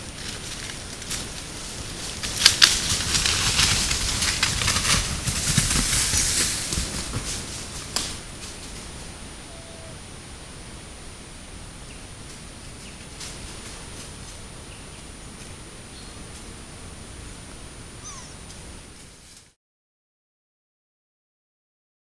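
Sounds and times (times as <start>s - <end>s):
rustling in leaf litter: 0.0s - 9.9s, 12.2s - 14.8s
twigs snapping: 0.2s - 8.8s.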